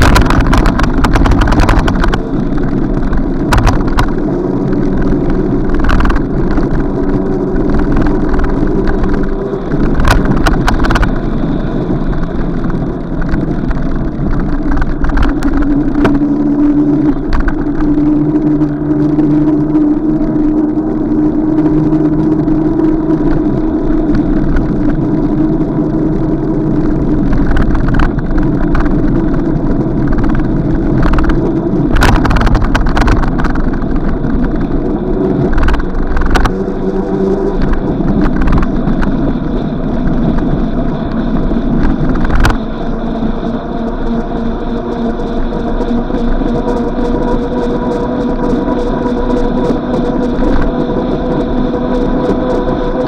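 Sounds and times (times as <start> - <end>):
engine running: 0.0 - 53.0
sharp knocks and clatters: 3.4 - 4.2.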